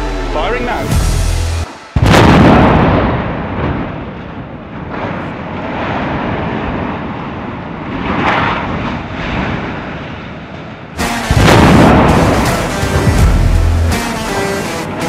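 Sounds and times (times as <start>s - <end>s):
explosive blast: 0.9s - 6.6s, 11.0s - 15.0s
building collapsing rumble: 1.9s - 13.9s.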